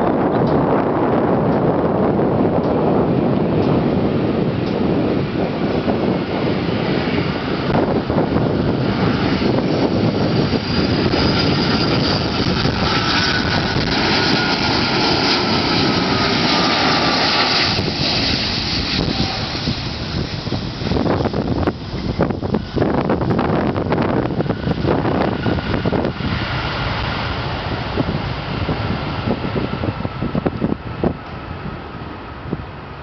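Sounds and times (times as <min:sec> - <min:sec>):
jet engines passing: 0:00.0 - 0:33.0
faint engine whine: 0:00.1 - 0:33.0.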